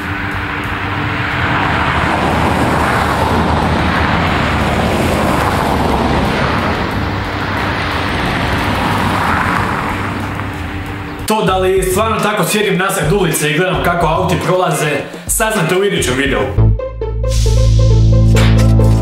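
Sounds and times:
cars driving past: 0.0s - 11.3s
background music: 0.0s - 19.0s.

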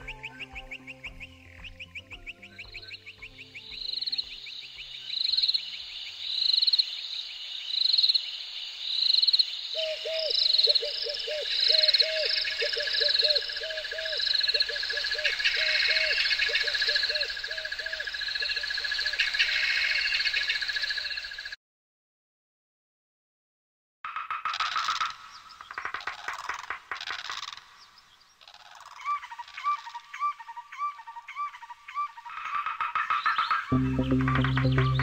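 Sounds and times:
frogs croaking: 0.4s - 21.6s, 24.4s - 31.3s
insects chirping: 2.7s - 21.6s.

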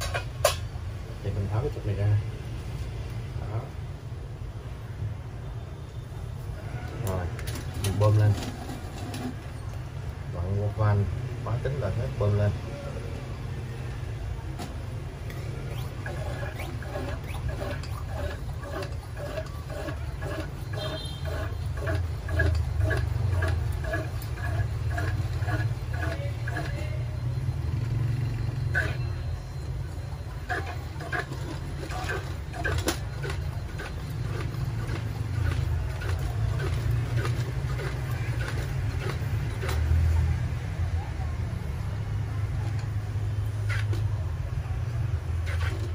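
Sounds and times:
hand air pump squeaking: 15.3s - 27.0s, 28.4s - 39.9s.

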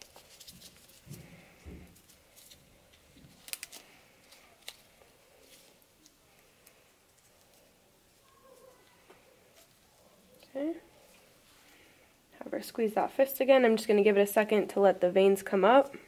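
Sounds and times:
rustling handling noises: 0.0s - 12.2s.

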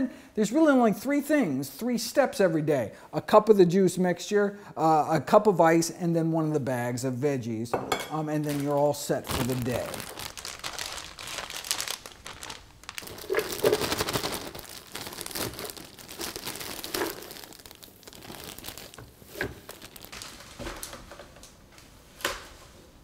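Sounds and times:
plastic bag crinkling: 8.4s - 21.1s.

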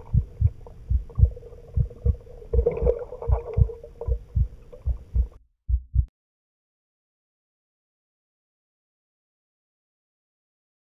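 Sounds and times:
faint hum: 0.0s - 6.1s
heartbeat thumps: 0.0s - 6.1s.

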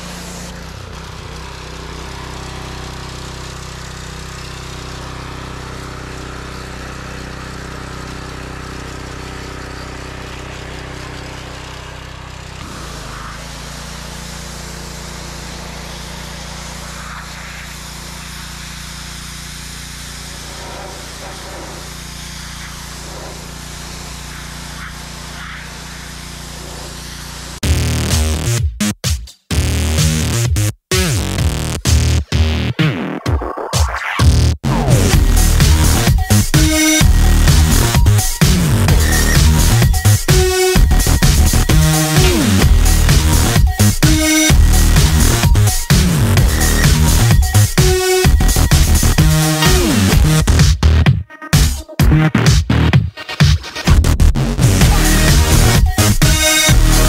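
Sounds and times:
high-pressure water spray hiss: 0.0s - 0.6s, 12.6s - 27.6s
pressure washer engine running: 0.0s - 27.6s, 34.9s - 50.6s, 54.7s - 57.0s.

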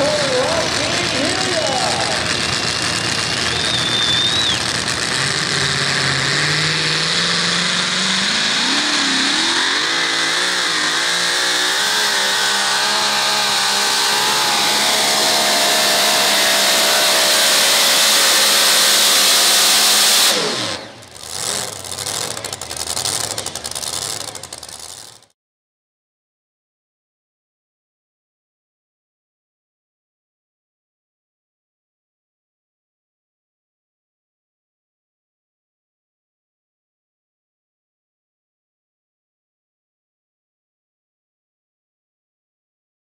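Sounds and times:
supercharged truck engine at full throttle: 0.0s - 25.3s.

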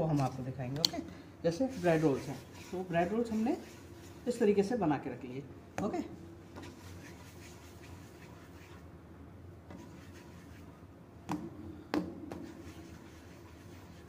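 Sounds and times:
hands rubbing dough on stone: 1.5s - 4.6s, 6.6s - 8.9s, 9.7s - 10.8s, 12.3s - 14.0s.

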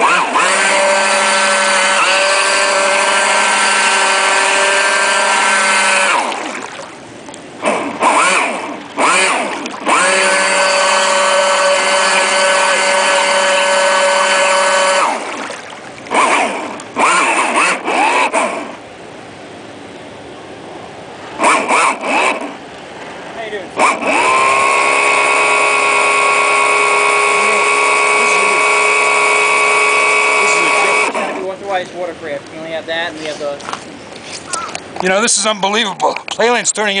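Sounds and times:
model boat motor whining: 0.0s - 18.9s, 21.3s - 22.7s, 23.5s - 31.9s.

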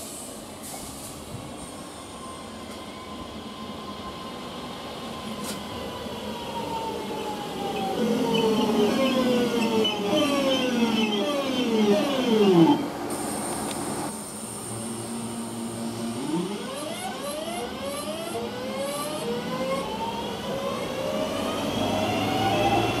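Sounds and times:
electric train motors whining: 6.6s - 13.1s.

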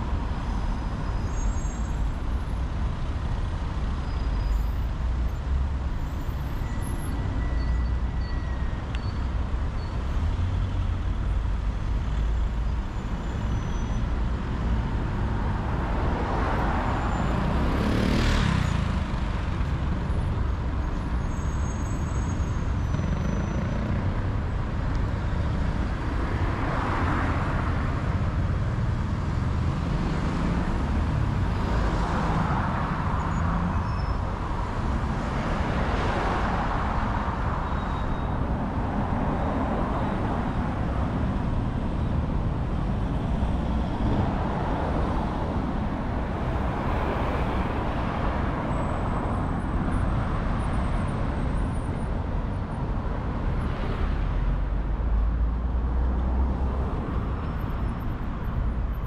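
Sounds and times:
low rumble of engines and tyres: 0.0s - 59.0s
cars passing: 14.1s - 59.0s.

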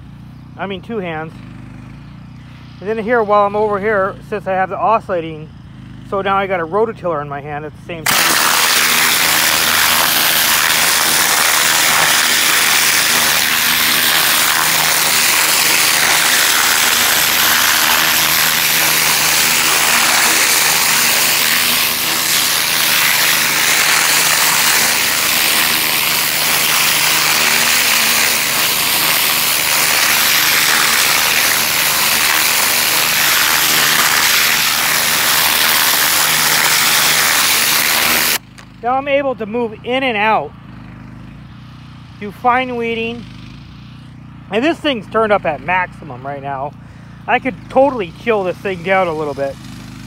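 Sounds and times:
pressure washer motor hum: 7.5s - 50.0s
pressure washer jet hissing: 8.0s - 38.4s, 46.8s - 50.0s.

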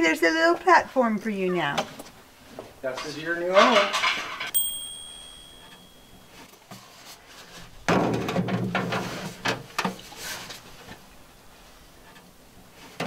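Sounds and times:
plastic tank click with ringing: 4.5s - 6.1s
plastic tank knocking and scraping: 7.8s - 10.0s.

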